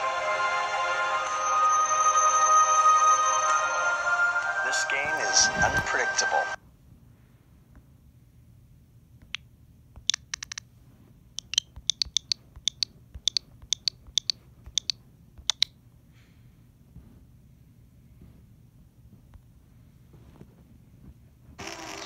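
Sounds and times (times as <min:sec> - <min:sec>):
sharp clicks: 0:09.2 - 0:10.7, 0:11.4 - 0:15.7.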